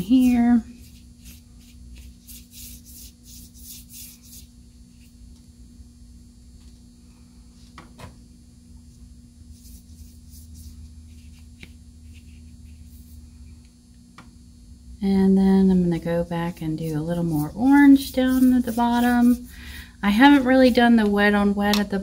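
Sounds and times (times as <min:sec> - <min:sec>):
paintbrush stroking paper: 0:00.0 - 0:05.2, 0:09.5 - 0:13.2, 0:16.6 - 0:19.5
electrical hum: 0:00.0 - 0:22.0.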